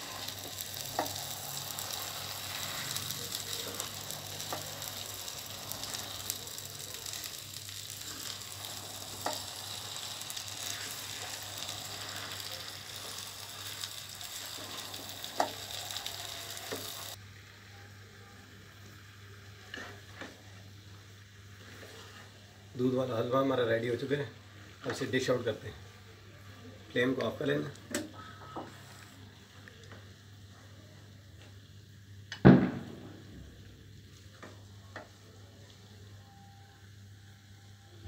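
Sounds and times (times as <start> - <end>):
food sizzling in a wok: 0.0 - 27.6.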